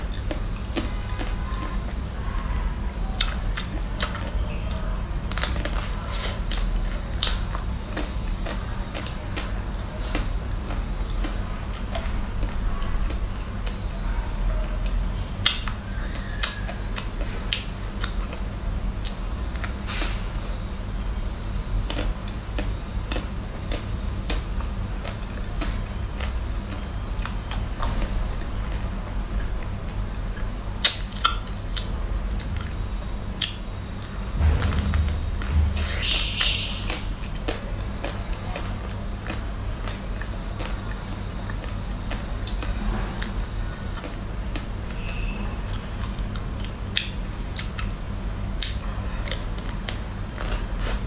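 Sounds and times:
steady low hum: 0.0s - 51.0s
chocolate shell cracking while eating: 14.8s - 19.8s, 36.9s - 51.0s.

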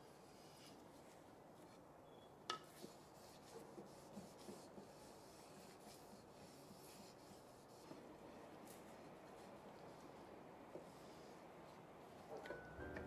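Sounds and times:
cloth rubbing wooden spatula: 2.7s - 12.3s.

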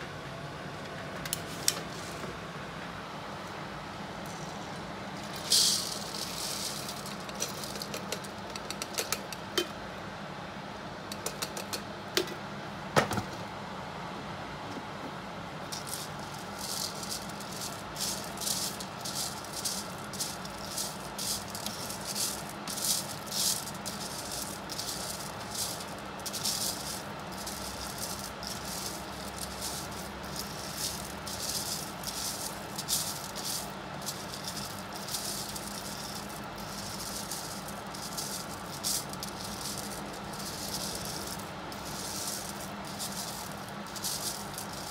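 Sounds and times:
fan humming: 0.0s - 44.9s
coffee beans pouring: 4.3s - 9.7s, 15.6s - 44.9s
beans rattling in mesh bowl: 4.3s - 9.8s, 11.1s - 11.8s, 15.6s - 44.9s.

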